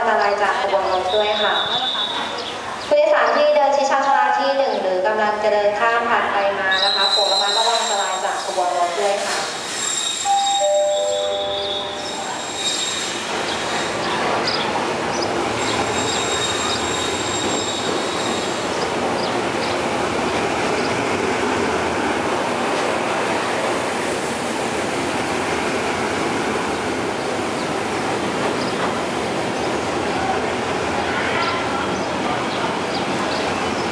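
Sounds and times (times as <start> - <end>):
high wheel squeal: 6.7 - 8.6, 9.2 - 14.3, 15.6 - 18.8
locomotive rumbling: 6.7 - 33.9.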